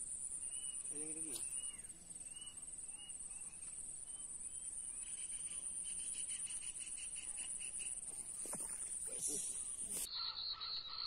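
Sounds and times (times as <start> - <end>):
fast pulsing chirp: 0.0 - 8.0
insects trilling: 0.0 - 11.0
short insect chirps: 0.0 - 11.0.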